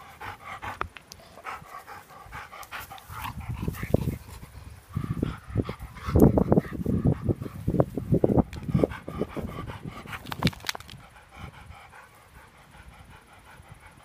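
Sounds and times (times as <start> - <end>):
dog panting: 0.0 - 14.0
rustling and scuffing on grass: 1.2 - 8.4.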